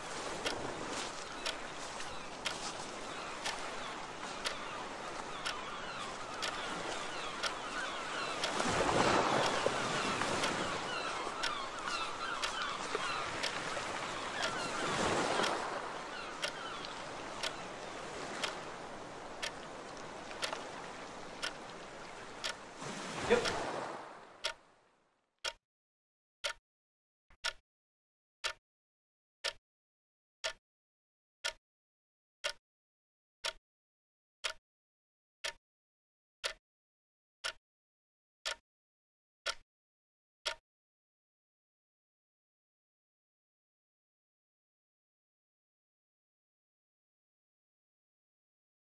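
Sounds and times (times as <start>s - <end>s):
sea waves washing ashore: 0.0s - 24.9s
clock ticking: 6.4s - 6.6s, 20.4s - 20.6s, 23.4s - 23.6s.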